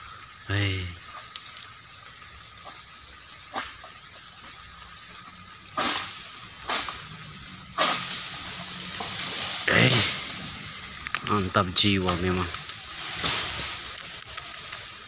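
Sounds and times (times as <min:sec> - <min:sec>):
fronds crashing through leaves: 0:05.7 - 0:15.0
fronds swishing: 0:05.8 - 0:14.2.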